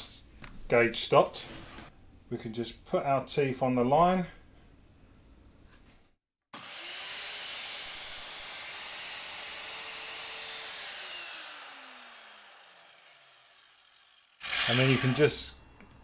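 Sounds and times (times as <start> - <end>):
mitre saw cutting wood: 6.5 - 15.4
saw motor winding down: 6.6 - 15.4.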